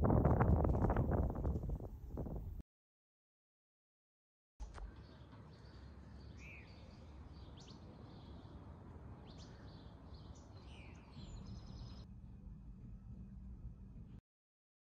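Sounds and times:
low steady rumble: 11.4 - 14.2.

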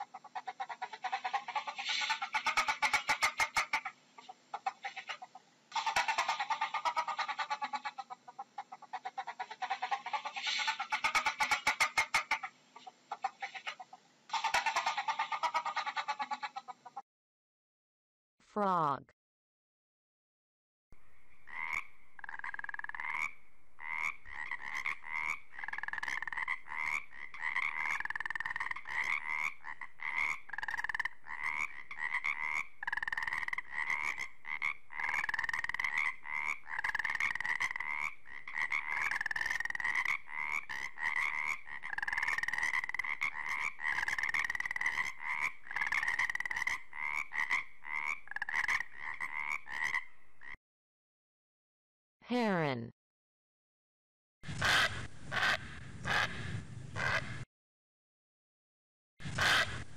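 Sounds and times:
frogs croaking: 21.0 - 50.6, 54.6 - 56.3, 57.0 - 57.2.

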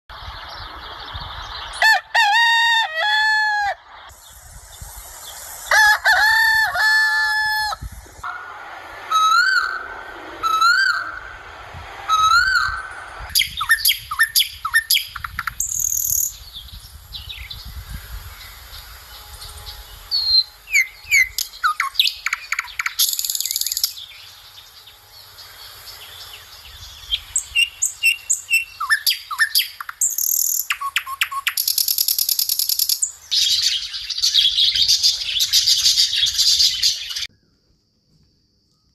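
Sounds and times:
birds calling and chirping: 9.0 - 37.5
rising whistled bird notes: 9.1 - 11.4, 12.1 - 24.7, 26.0 - 37.4.

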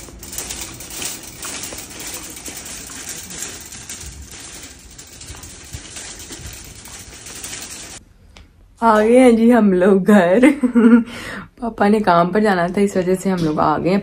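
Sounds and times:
shopping cart rattling over paving: 0.0 - 8.0.

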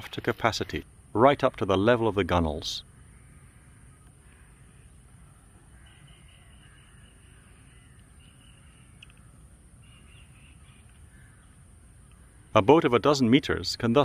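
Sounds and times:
crows cawing faintly: 2.8 - 13.6.

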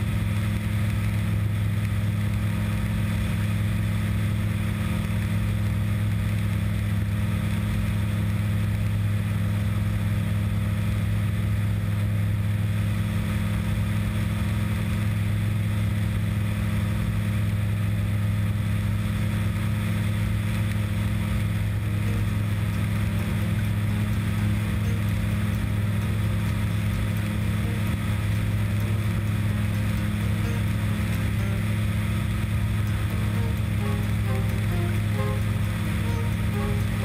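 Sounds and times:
light aircraft engine droning: 0.0 - 37.0.

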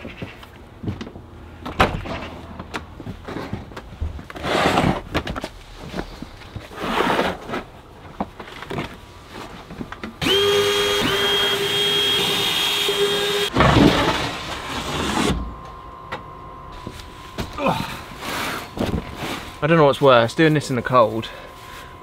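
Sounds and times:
cordless drill running: 10.2 - 13.5.

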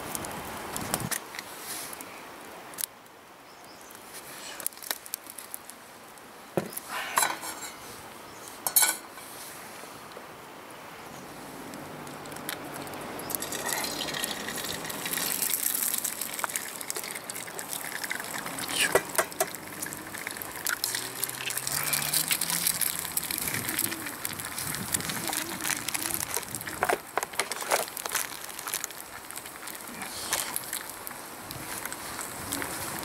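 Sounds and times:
eggs sizzling in hot oil: 13.2 - 31.0
egg cracking against pan: 13.3 - 29.8.

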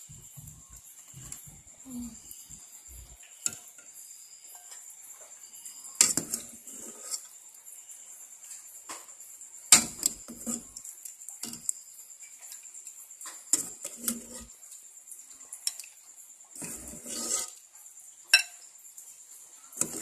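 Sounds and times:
thin high-pitched hiss: 0.0 - 20.0
metal ladle clinking in a pot: 18.4 - 18.6.

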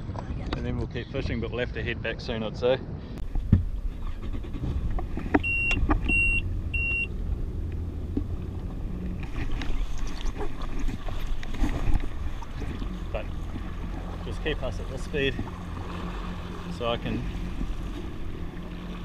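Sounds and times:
jet ski engine rumbling: 0.0 - 19.0
wind: 0.0 - 19.0
short electronic beeps: 5.4 - 7.1.

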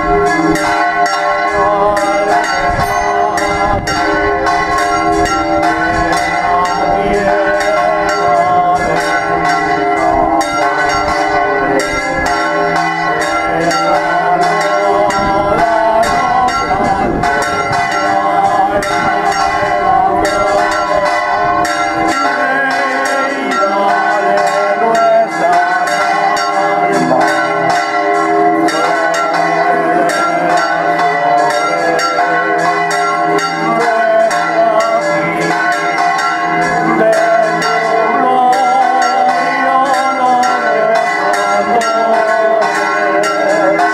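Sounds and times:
church bells pealing: 0.0 - 43.9.

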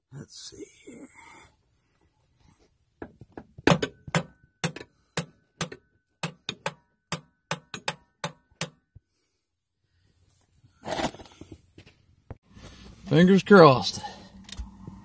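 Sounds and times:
hammer tapping on metal: 3.7 - 8.8.

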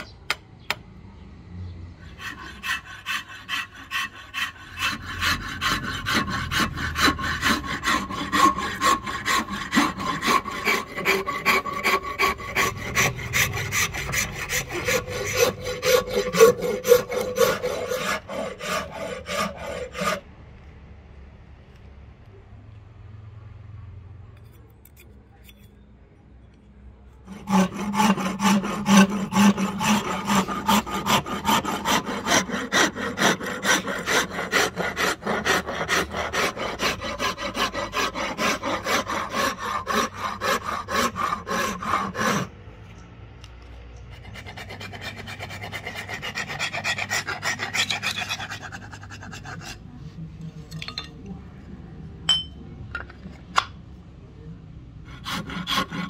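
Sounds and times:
steel file rasping on wood: 2.1 - 20.3, 27.2 - 42.6, 44.1 - 49.9, 55.1 - 56.0.

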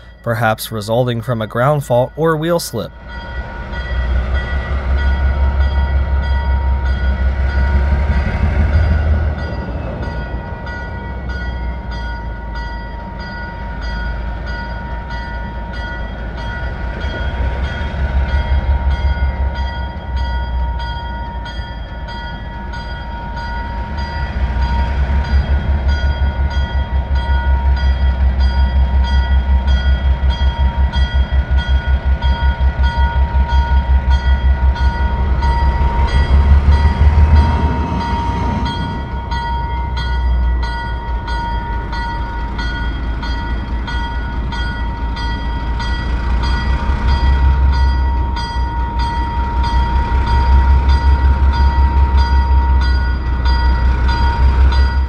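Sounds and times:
diesel engine chugging under load: 23.6 - 55.0.

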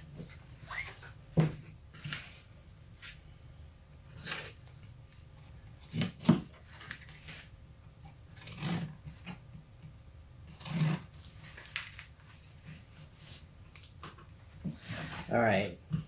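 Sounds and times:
blade scraping paper envelope: 8.4 - 9.4, 10.5 - 12.1.

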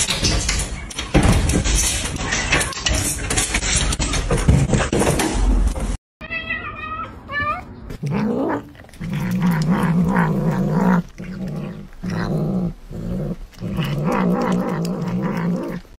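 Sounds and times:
cat growling: 7.9 - 16.0.

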